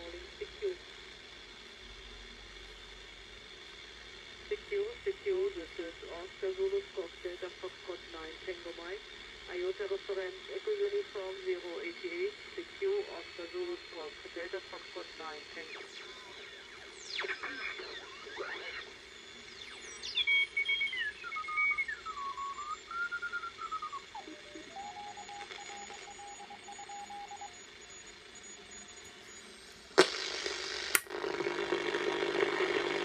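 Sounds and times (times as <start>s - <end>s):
radio static: 0.0s - 0.9s, 4.5s - 21.3s, 23.2s - 33.0s
background hiss: 0.0s - 33.0s
radio whistling tones: 9.6s - 33.0s.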